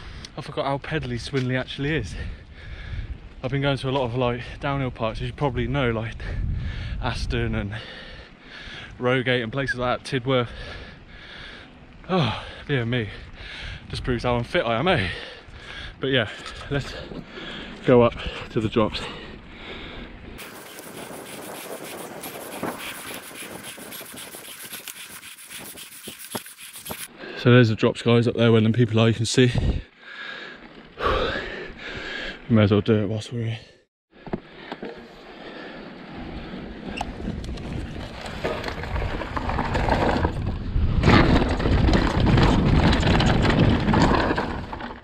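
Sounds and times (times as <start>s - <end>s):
wind noise on microphone: 1.0s - 8.0s, 19.7s - 27.1s, 29.5s - 29.9s, 36.3s - 45.0s
bike tyres crunching on dirt: 36.1s - 45.0s.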